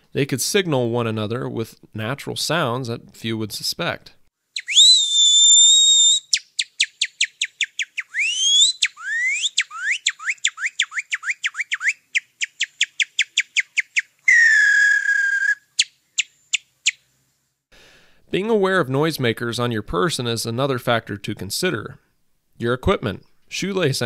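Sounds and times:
man whistling bird-like chirps: 4.6s - 16.6s.

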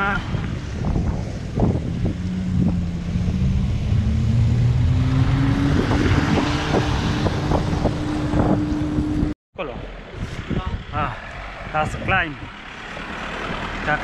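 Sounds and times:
bicycle rolling rumble: 0.4s - 5.0s
steady hum rising in pitch: 1.3s - 9.4s.

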